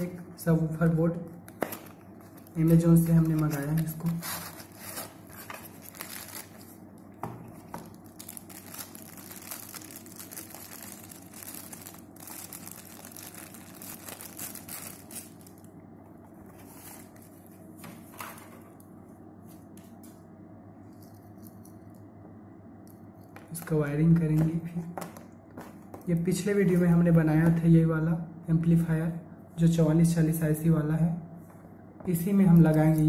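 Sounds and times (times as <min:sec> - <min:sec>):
packaging rustling and crinkling: 0:01.4 - 0:15.7, 0:16.4 - 0:18.2.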